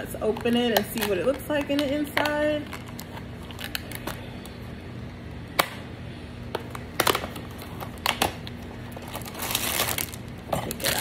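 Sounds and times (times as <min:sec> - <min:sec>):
plastic packaging clicking: 0:00.3 - 0:04.2, 0:06.6 - 0:11.0.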